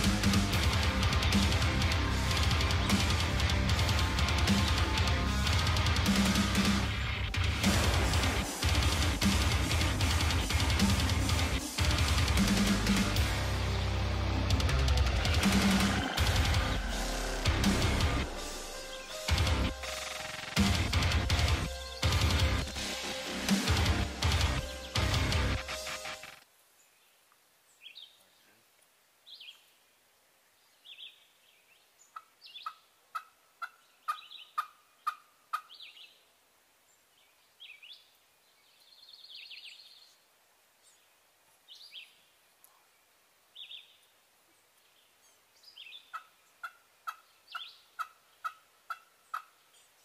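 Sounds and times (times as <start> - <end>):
birds chirping: 0.0 - 50.0
turkey yelping: 32.2 - 35.8, 46.1 - 49.6.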